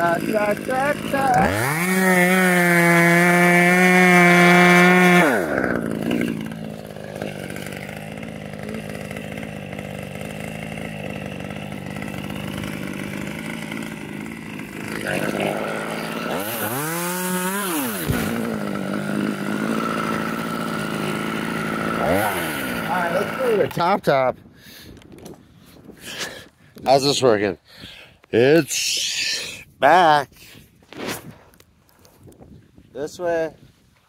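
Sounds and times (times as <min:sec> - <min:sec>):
chainsaw revving and idling: 0:00.0 - 0:24.0.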